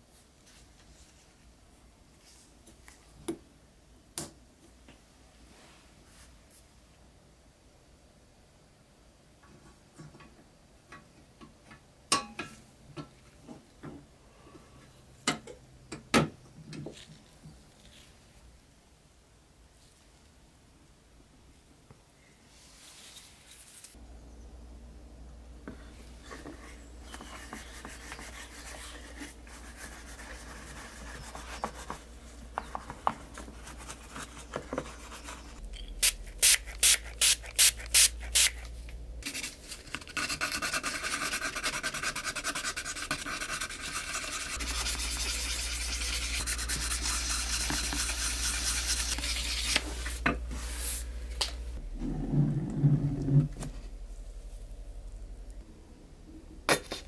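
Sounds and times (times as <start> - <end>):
sandpaper rubbing: 39.2 - 51.1.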